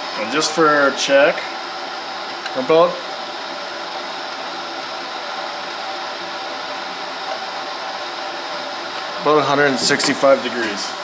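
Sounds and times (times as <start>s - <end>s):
fan whirring: 0.0s - 11.0s.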